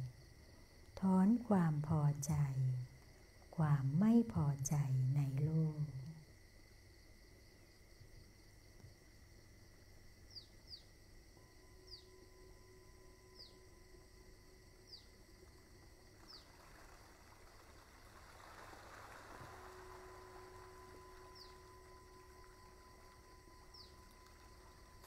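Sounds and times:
faint hiss: 0.0s - 25.0s
high falling chirp: 11.7s - 13.9s, 16.1s - 25.0s.

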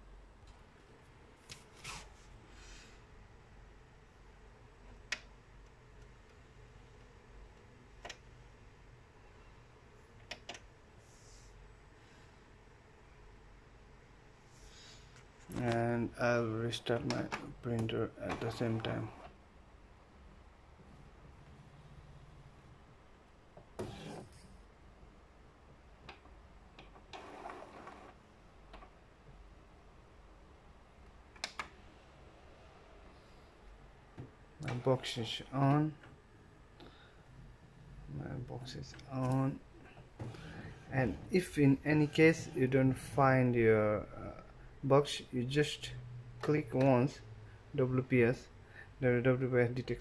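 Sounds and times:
faint room hum: 0.0s - 50.0s
printer mechanical whir: 17.0s - 19.4s, 26.8s - 28.2s.

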